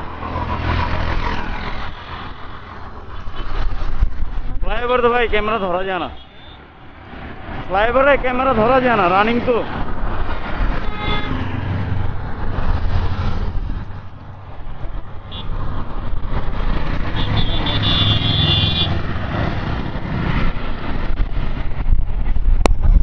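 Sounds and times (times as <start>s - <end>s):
road traffic: 0.0s - 23.0s
vehicle horn: 6.0s - 6.6s, 10.8s - 11.5s, 15.3s - 15.5s, 17.1s - 19.0s.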